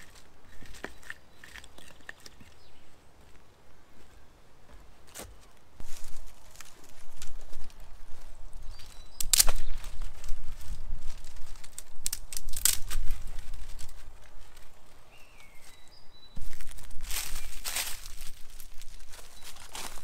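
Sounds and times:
dry twigs rustling and crackling: 0.0s - 3.4s, 5.1s - 20.0s
footsteps on dry leaves: 0.0s - 3.4s, 4.0s - 20.0s
faint bird chirps: 8.6s - 9.9s.

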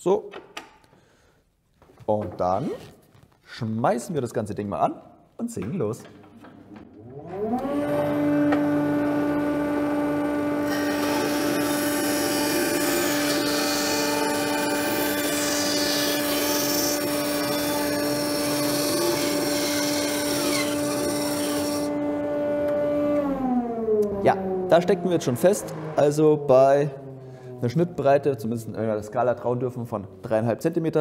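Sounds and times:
band saw motor humming: 7.0s - 28.0s
saw blade rasping through wood: 10.7s - 21.9s.

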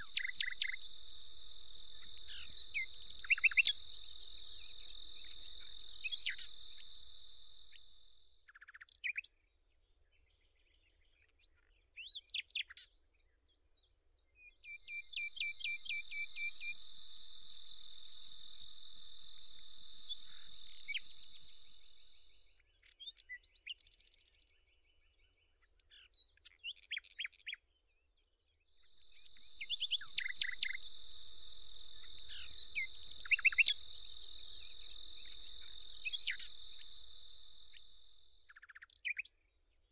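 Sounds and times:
insects trilling: 0.0s - 8.4s, 14.8s - 22.4s, 28.8s - 38.5s
short bird chirps: 0.0s - 9.2s, 14.6s - 24.6s, 28.8s - 39.5s.

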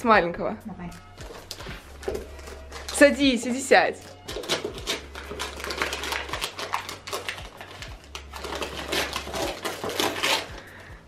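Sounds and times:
wrapping paper rustling and crinkling: 1.1s - 10.9s.

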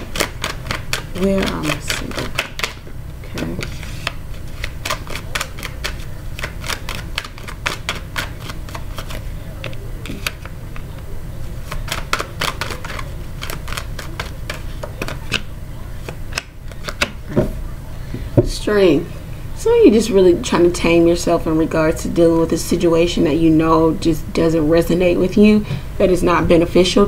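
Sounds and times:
cards clicking and flicking: 0.0s - 11.0s, 11.6s - 17.2s.

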